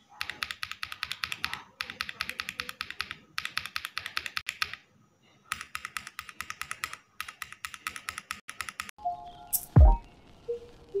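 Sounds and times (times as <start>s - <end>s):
mechanical keyboard typing: 0.2s - 4.8s, 5.5s - 8.9s.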